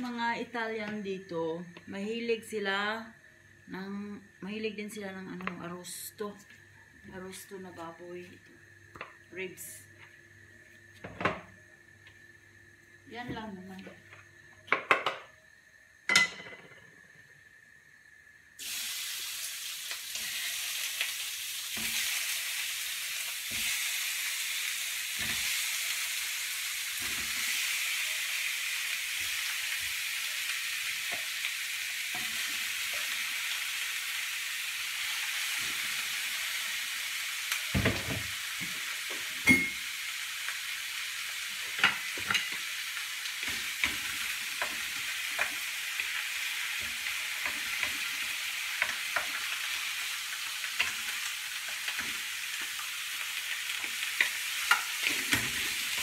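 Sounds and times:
meat sizzling in hot oil: 17.8 - 56.0.

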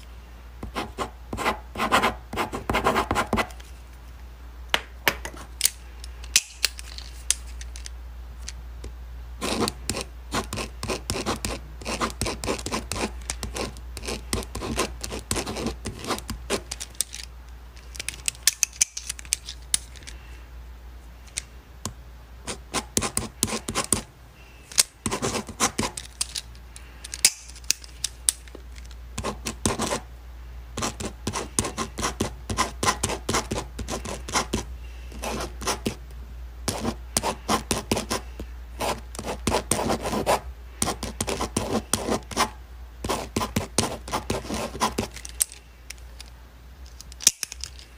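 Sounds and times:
faint low hum: 0.0 - 47.9
pen scratching on paper: 0.6 - 3.5, 9.4 - 16.7, 22.5 - 24.1, 25.0 - 26.0, 29.2 - 30.0, 30.8 - 36.0, 36.7 - 45.1.

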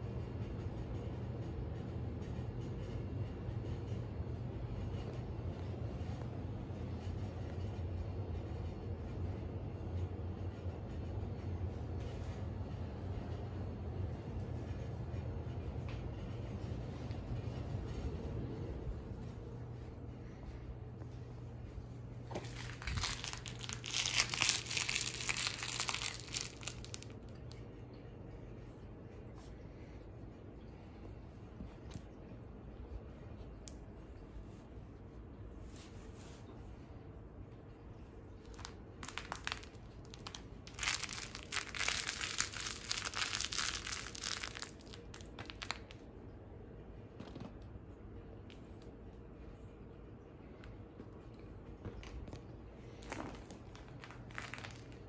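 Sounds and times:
crinkly cat toy rustling: 20.2 - 27.6, 38.3 - 46.0, 51.2 - 55.0.

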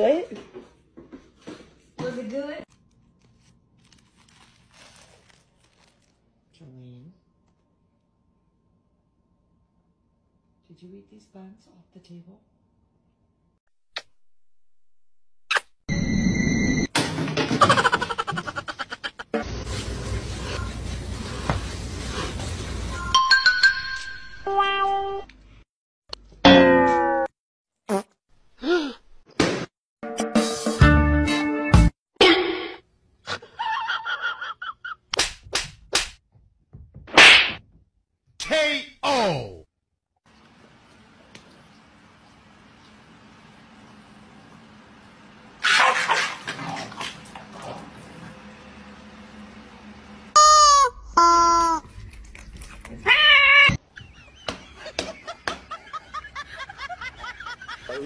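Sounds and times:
cat meowing loudly: 53.0 - 53.8.

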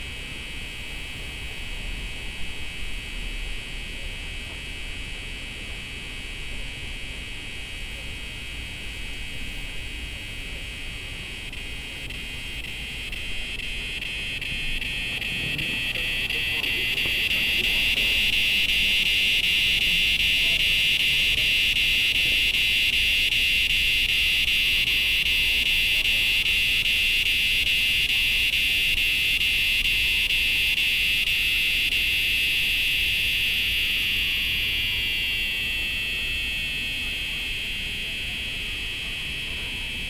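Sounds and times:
cicadas buzzing: 11.2 - 38.8.

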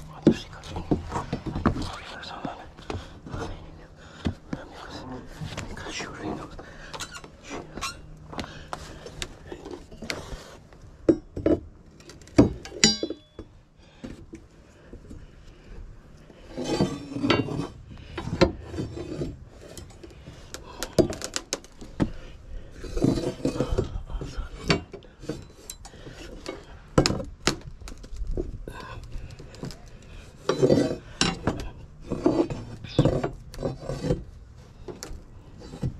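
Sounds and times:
metal scraping on wood: 0.2 - 10.7, 15.0 - 27.3, 27.9 - 35.9
metal clang: 12.4 - 13.4
metal bar clinking: 12.6 - 13.3.

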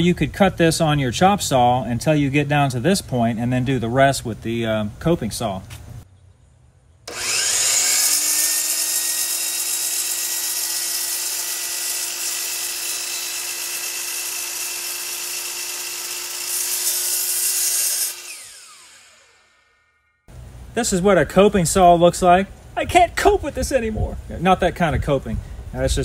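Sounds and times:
miter saw whining and cutting: 7.1 - 20.2.

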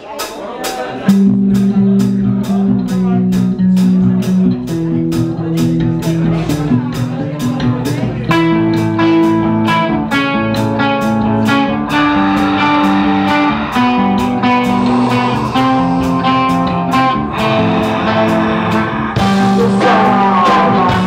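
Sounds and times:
drum kit: 0.0 - 21.0
electric guitars: 1.0 - 21.0
cymbal strikes: 11.9 - 20.4.

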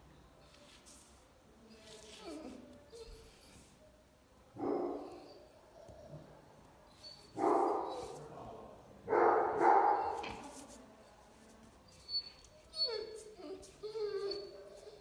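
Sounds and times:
dog barking with echo: 7.4 - 8.0, 9.1 - 10.2.

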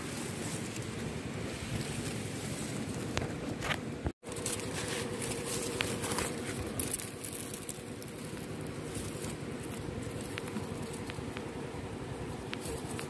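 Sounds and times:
grass rustling against camera: 0.0 - 13.0
steady low hum: 0.0 - 13.0.

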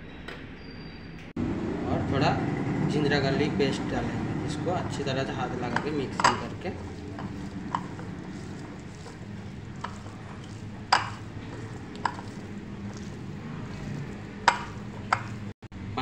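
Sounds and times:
steady low hum: 1.4 - 16.0
hand mixing chicken pieces: 2.2 - 15.6
clinks against ceramic bowl: 5.7 - 9.2, 9.8 - 13.1.

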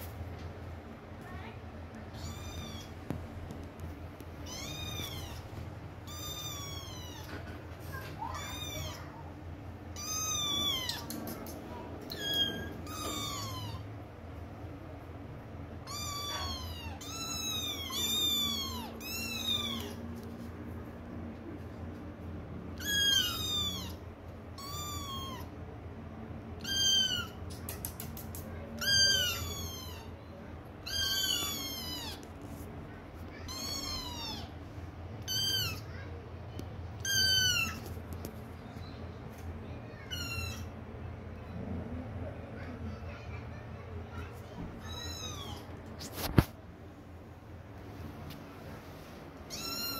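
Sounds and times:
kittens meowing: 2.1 - 3.0, 4.4 - 9.3, 9.9 - 13.9, 15.9 - 20.0, 22.8 - 25.5, 26.6 - 27.8, 28.8 - 30.2, 30.8 - 32.3, 33.4 - 34.6, 35.2 - 35.9, 37.0 - 37.9, 40.0 - 40.8, 44.8 - 46.3, 49.5 - 49.9.

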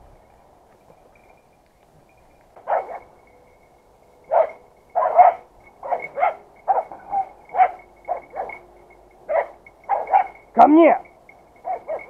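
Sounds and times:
dog barking: 2.6 - 3.1, 4.3 - 8.7, 9.3 - 10.6, 11.6 - 12.0.

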